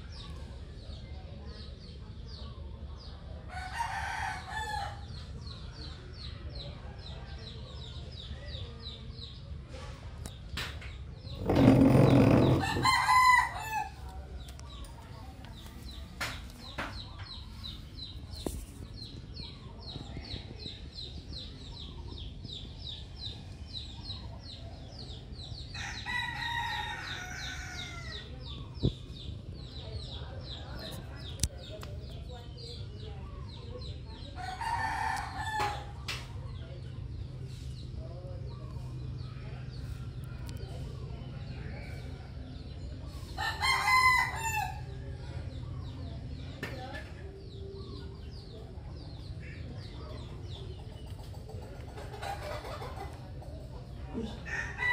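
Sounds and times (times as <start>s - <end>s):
small birds chirping: 0.0s - 54.9s
rooster crowing: 12.5s - 13.9s.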